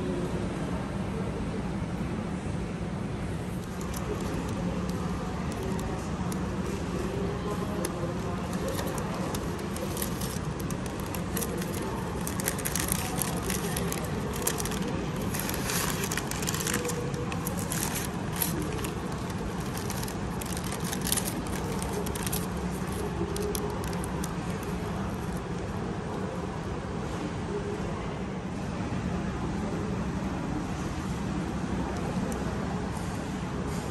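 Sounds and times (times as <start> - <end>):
low background hum: 0.0 - 33.9
paper crinkling and rustling: 3.6 - 25.4.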